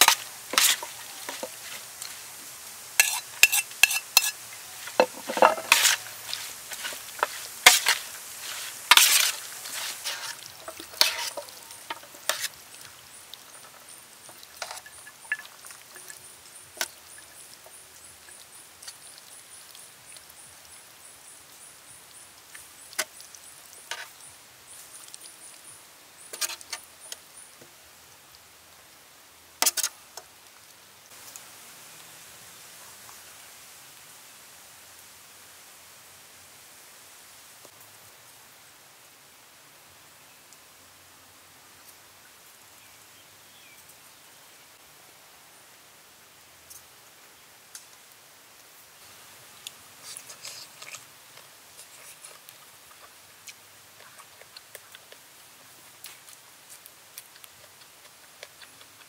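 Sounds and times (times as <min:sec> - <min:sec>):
metal utensil scraping tray: 0:00.0 - 0:02.2, 0:03.0 - 0:12.6
wet sticky mixing: 0:03.0 - 0:16.1.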